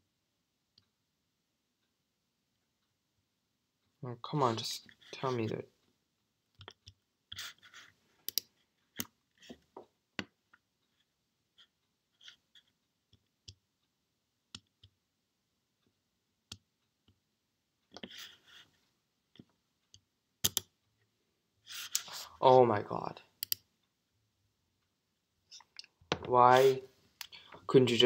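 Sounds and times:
computer mouse clicks: 8.2s - 9.1s, 19.9s - 20.7s, 23.4s - 23.6s.

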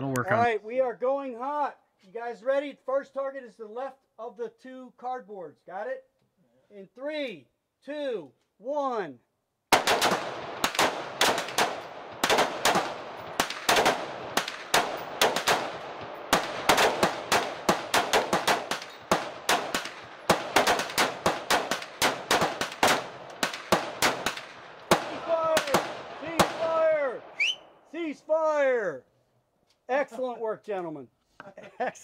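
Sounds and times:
rifles firing rapidly: 9.7s - 27.0s.

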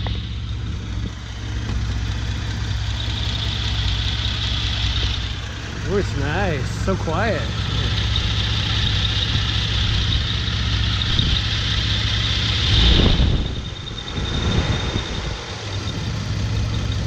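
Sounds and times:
car engine idling and revving: 0.0s - 17.0s
cooling fan rushing: 5.1s - 17.0s.

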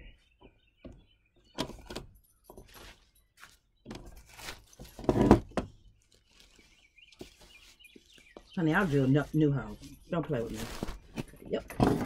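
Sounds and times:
chair handling rustles and knocks: 3.9s - 5.8s.

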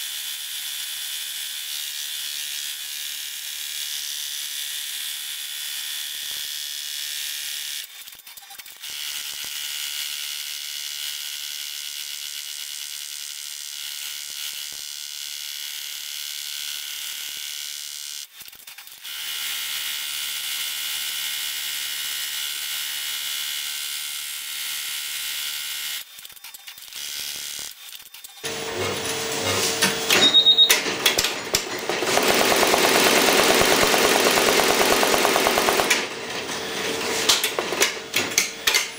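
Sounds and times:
embroidery machine whirring: 28.4s - 38.9s.

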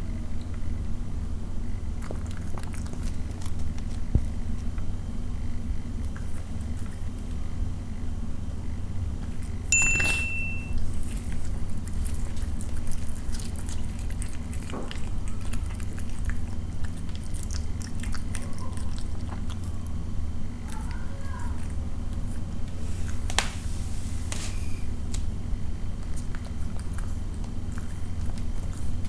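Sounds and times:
steady low hum: 0.0s - 29.0s
cat chewing meat: 1.6s - 8.0s, 10.8s - 23.3s, 25.7s - 29.0s
short high ding: 9.7s - 10.8s.

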